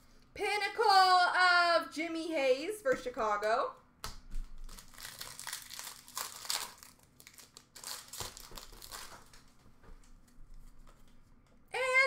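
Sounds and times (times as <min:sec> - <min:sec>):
trading cards rustling: 0:04.4 - 0:09.6.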